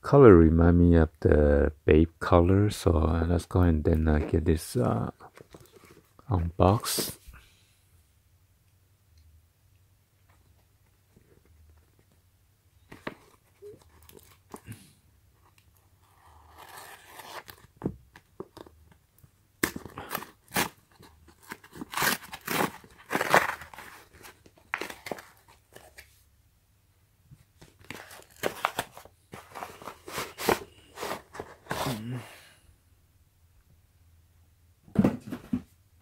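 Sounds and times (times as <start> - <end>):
paper envelope tearing: 16.2 - 17.7, 19.6 - 26.0, 27.9 - 32.0.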